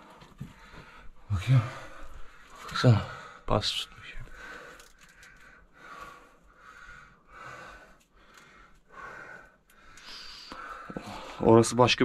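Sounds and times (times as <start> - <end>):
person breathing: 0.0 - 3.5, 4.2 - 11.5.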